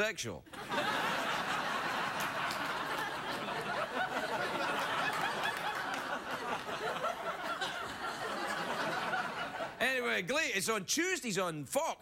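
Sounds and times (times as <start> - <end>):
studio audience laughing: 0.5 - 9.8.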